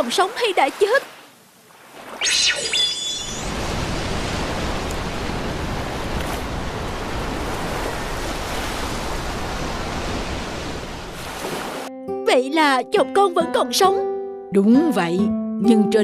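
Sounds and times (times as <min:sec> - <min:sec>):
surf and waves rushing: 0:00.0 - 0:11.9.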